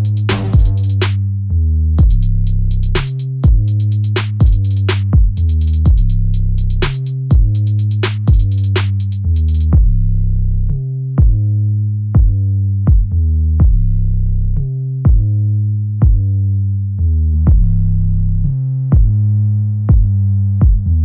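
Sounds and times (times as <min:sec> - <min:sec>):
drum machine beat: 0:00.0 - 0:01.2, 0:02.0 - 0:10.0, 0:11.2 - 0:11.4, 0:12.2 - 0:13.8, 0:15.1 - 0:15.3, 0:16.0 - 0:16.2, 0:19.0 - 0:19.2, 0:19.9 - 0:20.9
deep synthesizer bass: 0:00.0 - 0:21.0.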